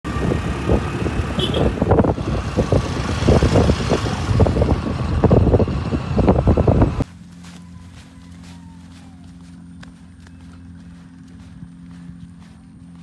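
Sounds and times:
road noise: 0.0 - 13.0
wind buffeting on microphone: 0.1 - 7.0
motorbike engine running: 0.1 - 13.0.

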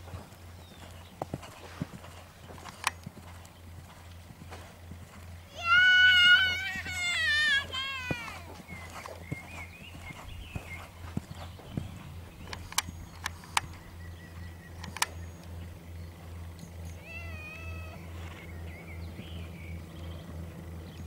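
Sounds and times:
low hum: 0.0 - 21.0
sharp clicks: 2.5 - 3.1, 12.4 - 13.8, 14.8 - 15.6
wavering animal cry: 5.5 - 8.6, 17.0 - 18.5.

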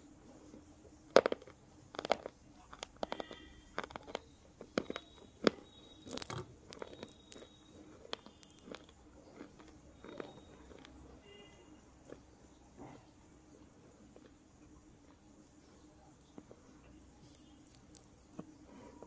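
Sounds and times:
pencil crunched between teeth: 1.1 - 11.0, 17.1 - 18.5.

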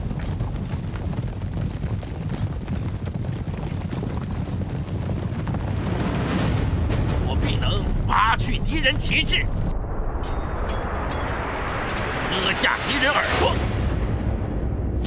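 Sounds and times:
horses galloping: 0.0 - 8.9.

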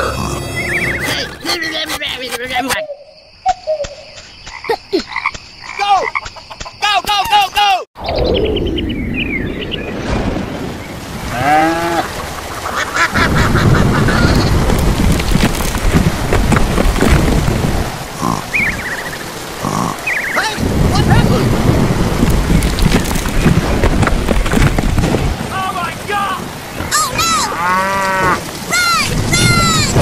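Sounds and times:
low thunder rumble: 8.0 - 12.6, 20.6 - 26.6, 29.0 - 30.0
heavy rain: 9.6 - 30.0
hail hitting: 9.9 - 27.5, 28.2 - 30.0.

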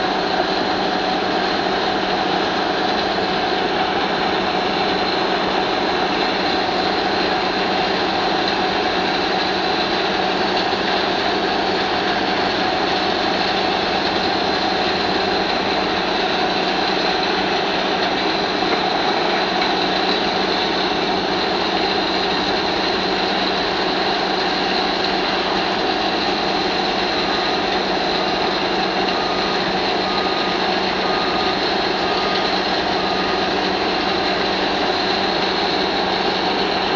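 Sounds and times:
crusher engine and crushing din: 0.0 - 36.9
beeping alarm: 27.2 - 34.7.

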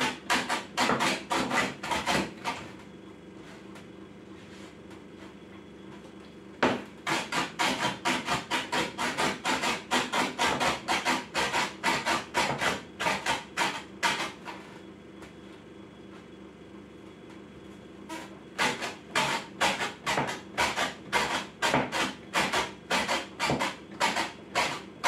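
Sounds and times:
hatchet chopping on wooden board: 0.0 - 2.3, 6.6 - 14.3, 18.6 - 24.8.

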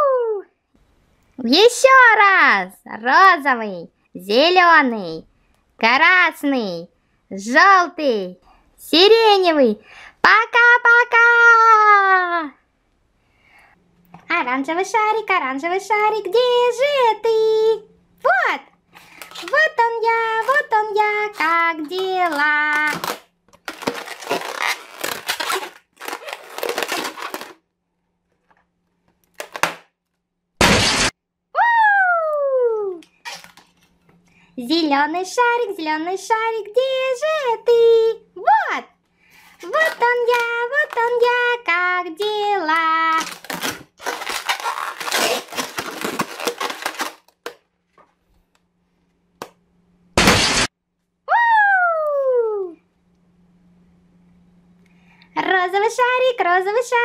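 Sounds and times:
balloon squeaking and rubbing: 19.2 - 27.6, 33.2 - 33.6, 43.1 - 47.3
balloon popping: 21.4 - 27.6, 29.4 - 29.9, 30.6 - 31.2, 43.2 - 47.6, 50.2 - 50.7.

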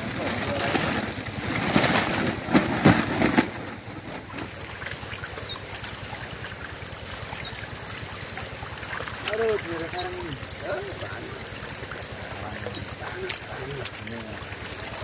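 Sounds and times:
loud water splashes: 0.0 - 15.0
running water trickle: 3.2 - 15.0.

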